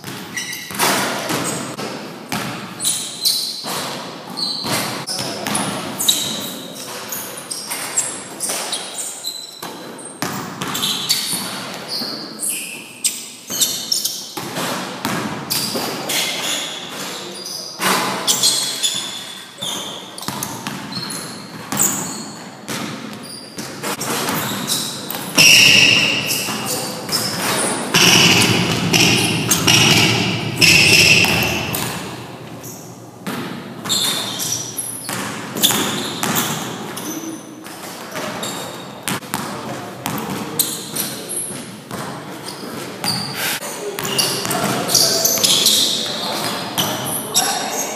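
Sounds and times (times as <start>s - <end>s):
basketball bouncing on gym floor: 0.0s - 3.0s, 19.6s - 37.1s, 38.2s - 42.2s
sneakers squeaking: 0.0s - 47.9s
ball thudding at basket: 25.4s - 32.4s.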